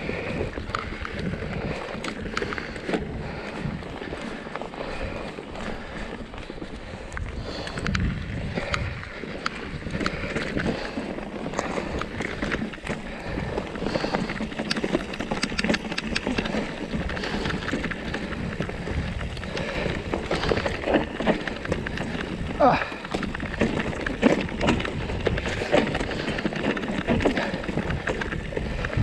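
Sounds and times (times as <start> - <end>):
bike clicks and rattles: 0.0 - 29.0
tyres crunching over stones: 0.0 - 29.0
wind and ground rumble: 0.0 - 29.0.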